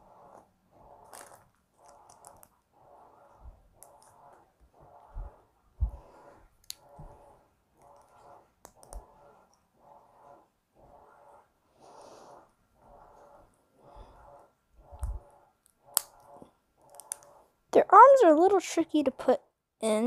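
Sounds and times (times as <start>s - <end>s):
rhythmic breathing: 0.0s - 17.6s
plastic parts clicking: 1.0s - 2.6s, 7.8s - 9.1s, 15.0s - 17.4s.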